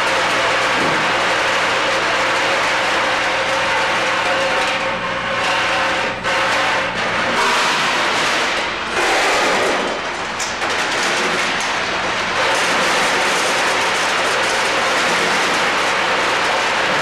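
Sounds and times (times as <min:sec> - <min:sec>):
packaging machine clatter: 0:07.7 - 0:17.0.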